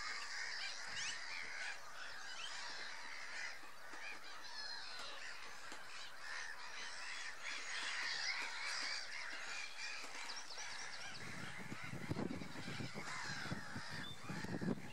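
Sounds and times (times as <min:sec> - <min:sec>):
gulls calling: 0:00.0 - 0:14.9.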